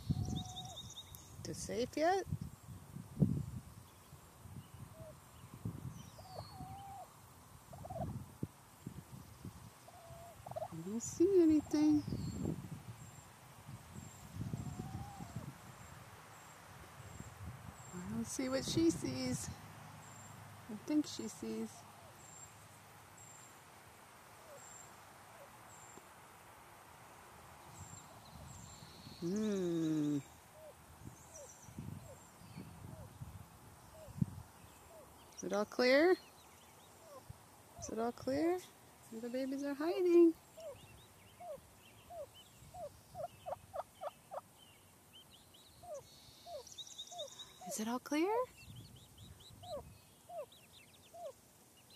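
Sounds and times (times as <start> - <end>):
turkey hen calls: 6.2 - 7.1, 7.7 - 8.1, 9.8 - 10.8, 14.6 - 15.5, 37.0 - 37.9, 40.6 - 44.4, 45.8 - 47.8, 49.4 - 51.4
turkey hen clucking: 9.9 - 10.8
person humming: 29.2 - 30.3.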